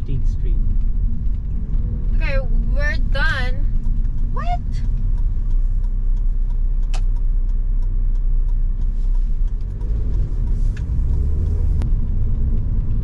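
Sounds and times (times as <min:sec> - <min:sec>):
car engine and road noise: 0:00.0 - 0:13.0
sharp click: 0:03.8 - 0:08.6.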